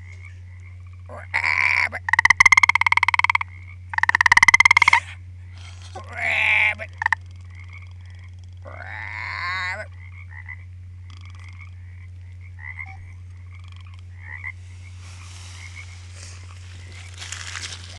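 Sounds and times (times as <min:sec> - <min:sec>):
bullfrog calling: 0:00.0 - 0:17.9
steady low hum: 0:00.0 - 0:17.9
soft rustle: 0:14.6 - 0:17.9.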